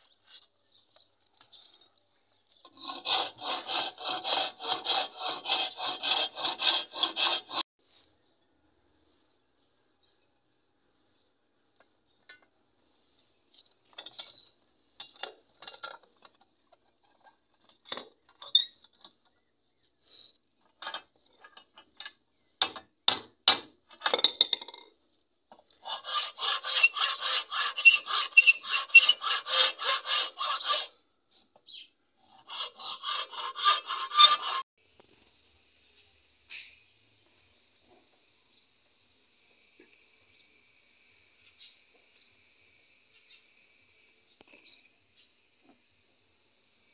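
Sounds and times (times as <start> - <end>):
hand saw cutting wood: 2.6 - 7.6, 25.7 - 31.0, 32.3 - 34.6.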